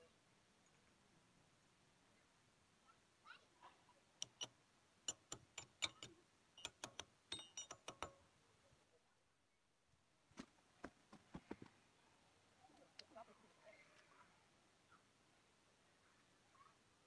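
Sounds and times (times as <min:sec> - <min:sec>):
light metallic clicks: 0:04.2 - 0:04.5, 0:05.1 - 0:08.2.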